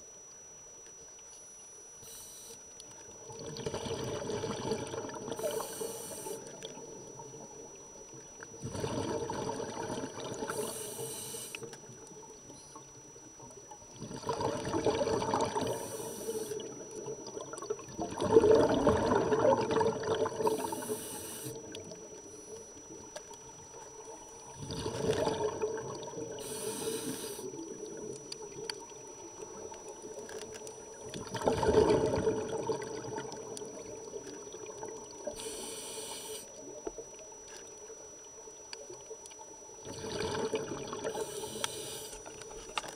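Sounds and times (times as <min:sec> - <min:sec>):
regulator hiss on inhale: 0:02.0 - 0:02.7, 0:05.3 - 0:06.6, 0:10.4 - 0:11.8, 0:15.6 - 0:16.8, 0:20.4 - 0:22.6, 0:26.3 - 0:27.6, 0:35.2 - 0:36.6, 0:41.0 - 0:42.4
bubbling exhaust on exhale: 0:03.2 - 0:07.9, 0:08.5 - 0:11.7, 0:13.6 - 0:30.2, 0:31.0 - 0:36.8, 0:39.8 - 0:42.2.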